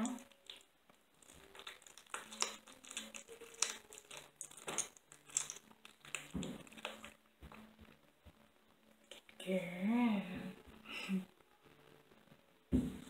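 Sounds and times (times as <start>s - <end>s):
kitten licking and chewing: 0.1s - 7.1s.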